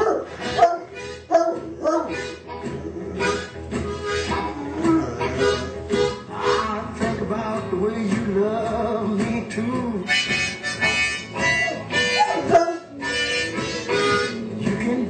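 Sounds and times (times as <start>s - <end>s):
blues harmonica: 0.0s - 7.3s, 10.0s - 14.6s.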